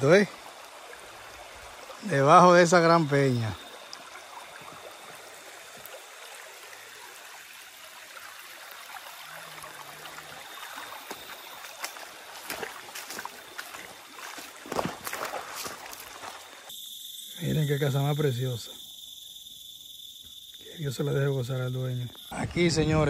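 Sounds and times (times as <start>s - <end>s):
water trickling into pool: 0.0s - 17.4s.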